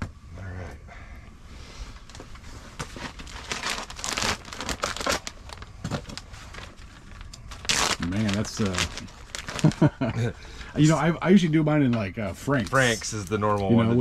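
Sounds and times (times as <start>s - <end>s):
crinkly packaging rustling: 2.0s - 10.0s, 12.5s - 13.8s.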